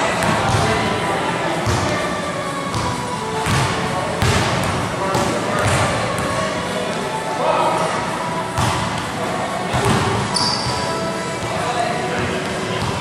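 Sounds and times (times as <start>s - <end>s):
background music: 0.0s - 13.0s
faint background voices: 0.0s - 13.0s
basketball bouncing on court: 2.7s - 6.3s, 8.6s - 8.8s.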